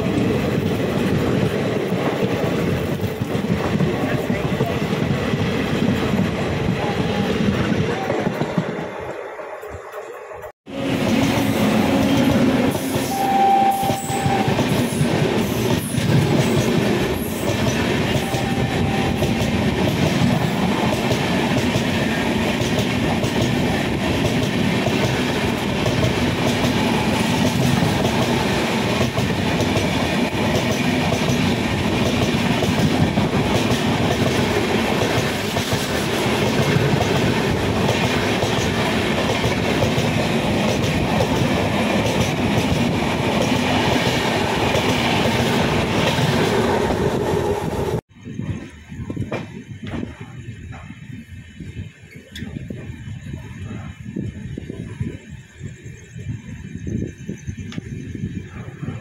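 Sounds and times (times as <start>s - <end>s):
train coaches rumbling: 0.0s - 59.0s
wheels clacking on rails: 0.0s - 59.0s
short high tone: 13.0s - 14.6s.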